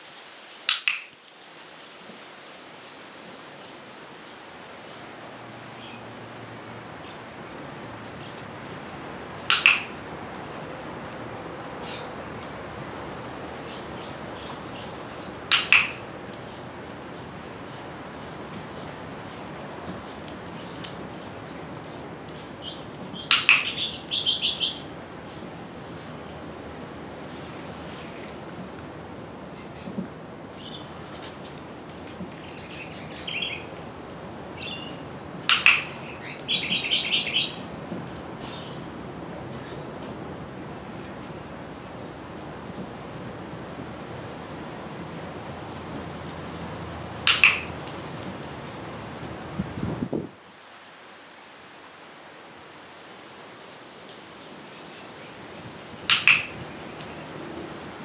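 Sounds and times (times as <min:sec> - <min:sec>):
dog claws on tile floor: 0:00.0 - 0:03.2, 0:05.6 - 0:12.2, 0:12.8 - 0:23.9, 0:34.9 - 0:36.4, 0:43.9 - 0:49.9, 0:53.4 - 0:58.0
sharp double click: 0:00.7 - 0:01.2, 0:09.5 - 0:09.9, 0:47.3 - 0:47.7
small birds chirping: 0:05.6 - 0:28.1, 0:29.2 - 0:33.7, 0:34.5 - 0:37.7, 0:38.4 - 0:38.9, 0:44.6 - 0:48.9, 0:54.4 - 0:57.9.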